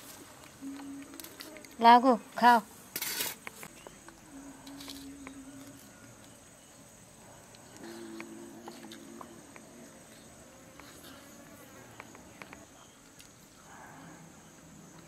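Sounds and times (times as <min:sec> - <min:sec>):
low buzz of fly passing: 0:00.0 - 0:13.0
insects droning: 0:00.0 - 0:15.0
faint ticks: 0:07.4 - 0:11.3.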